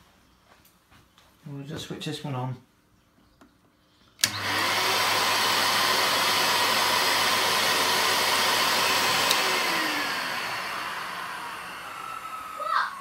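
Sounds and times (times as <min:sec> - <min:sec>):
vacuum cleaner switch click: 0:04.2 - 0:04.8, 0:09.2 - 0:09.7
vacuum cleaner motor running: 0:04.2 - 0:13.0.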